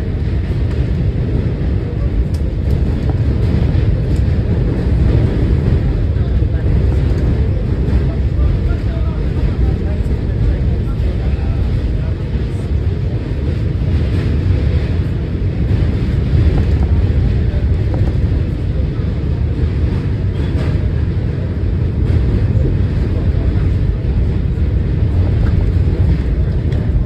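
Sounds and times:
subway train rumbling: 0.0s - 27.0s.

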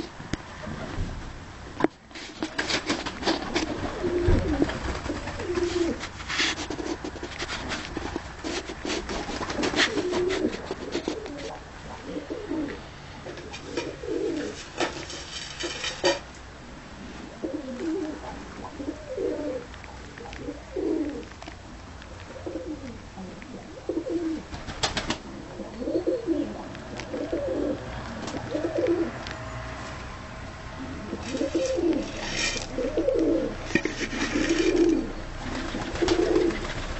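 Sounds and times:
pigeons cooing: 3.2s - 7.0s, 8.4s - 16.2s, 17.0s - 21.4s, 22.3s - 29.2s, 30.7s - 36.9s.

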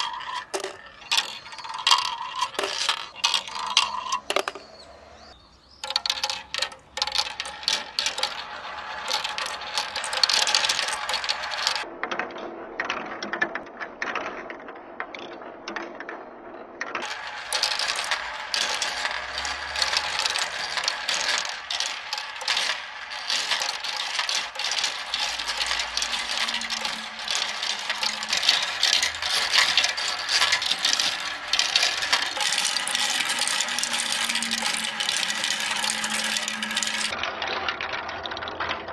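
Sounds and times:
balls clattering through marble run: 0.0s - 38.9s.

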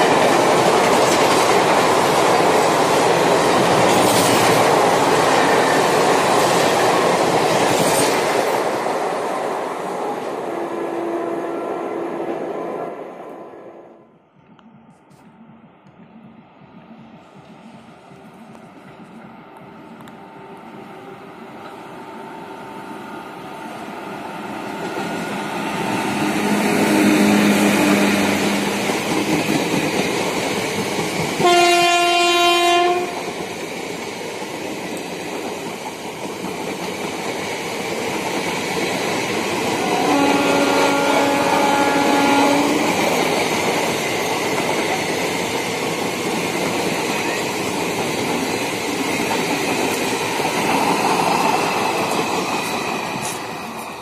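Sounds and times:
train passing at speed: 0.0s - 54.0s
lower faint train horn: 10.0s - 14.2s, 26.1s - 28.8s, 31.4s - 33.2s, 39.7s - 43.0s
loud train horn: 10.2s - 14.1s, 25.4s - 28.8s, 31.4s - 33.2s, 39.7s - 43.0s.

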